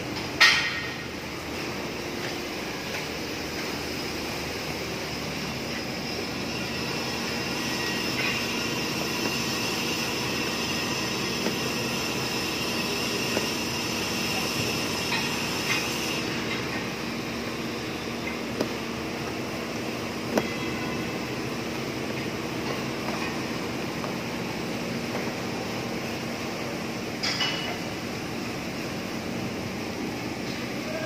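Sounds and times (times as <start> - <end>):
high whine: 2.6 - 27.7
machinery drone: 3.5 - 26.4.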